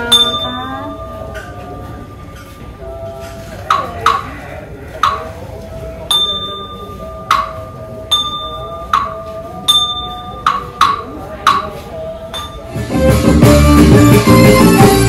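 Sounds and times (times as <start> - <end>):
small metal bell struck: 0.0 - 1.7, 6.1 - 11.7, 12.3 - 12.7.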